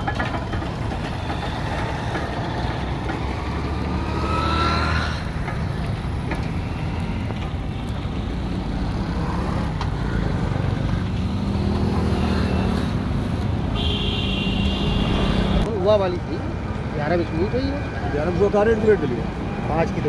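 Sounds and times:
crusher engine humming: 0:00.0 - 0:15.7.

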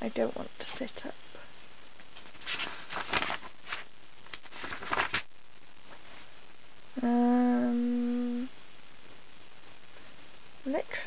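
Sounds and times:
rustling: 0:02.0 - 0:06.4
woman humming: 0:07.0 - 0:08.6.

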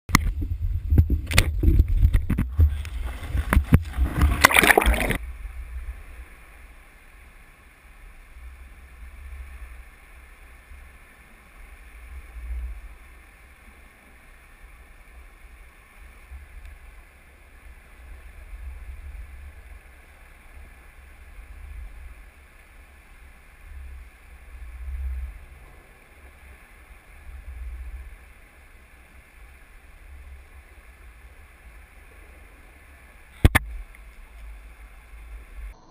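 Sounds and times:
muffled underwater rumble: 0:00.1 - 0:35.9.

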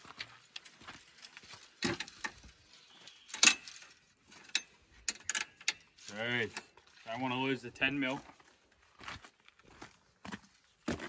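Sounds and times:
metal tools clinking and rattling: 0:01.6 - 0:07.0.

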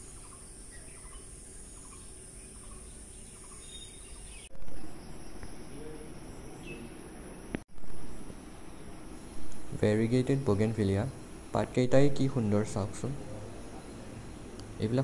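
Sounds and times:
bird chirps: 0:00.0 - 0:07.4.

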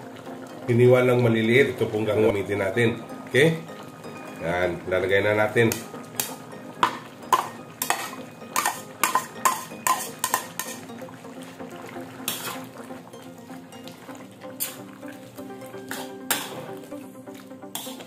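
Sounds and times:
metal spatula clinking on plate: 0:07.3 - 0:10.8.

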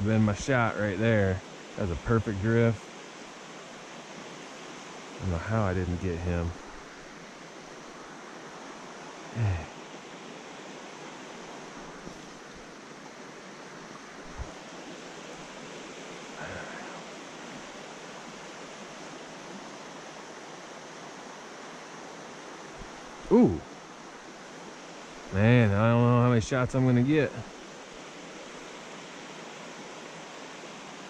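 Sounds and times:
stream flowing over rocks: 0:00.0 - 0:31.0
short loud low voice: 0:09.4 - 0:09.7, 0:23.3 - 0:23.6.

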